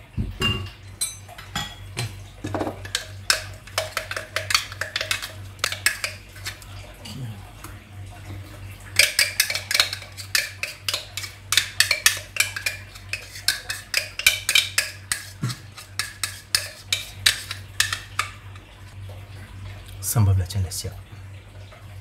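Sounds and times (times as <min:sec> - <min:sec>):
metal spoon clinking against bowl: 0:00.4 - 0:02.1, 0:02.8 - 0:06.6, 0:09.0 - 0:18.4.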